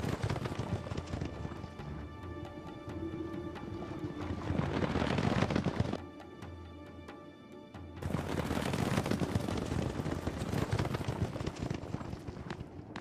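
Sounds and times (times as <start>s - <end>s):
soundtrack music: 0.3s - 8.2s.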